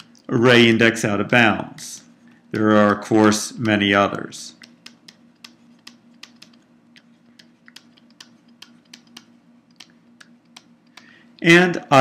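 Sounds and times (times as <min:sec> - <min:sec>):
faint steady hum: 0:00.0 - 0:12.0
stylus tapping on pen tablet: 0:04.6 - 0:11.1.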